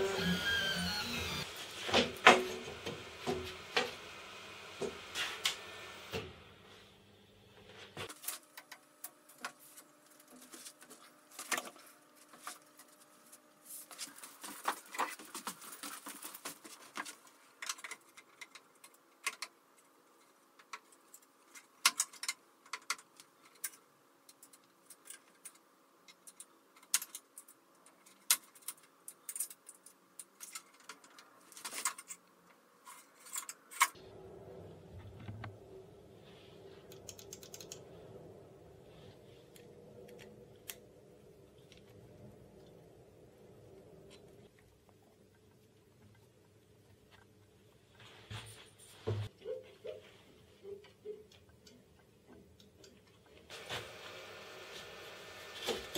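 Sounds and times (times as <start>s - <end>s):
steady hum: 33.4s - 49.3s.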